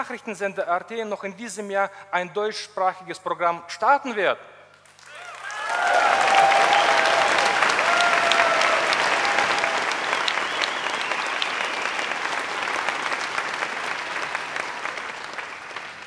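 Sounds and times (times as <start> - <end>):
audience applauding: 4.9 - 16.0.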